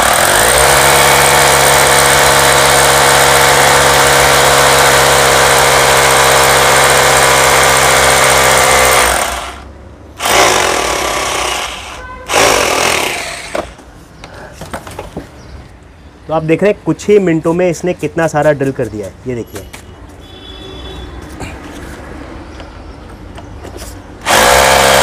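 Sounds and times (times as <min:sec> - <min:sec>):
hammer drill boring into stone: 0:00.0 - 0:09.6, 0:10.2 - 0:13.7, 0:24.2 - 0:25.0.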